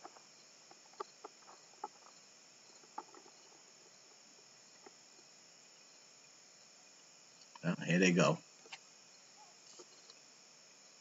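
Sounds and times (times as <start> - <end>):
insect chirring: 0.0 - 11.0.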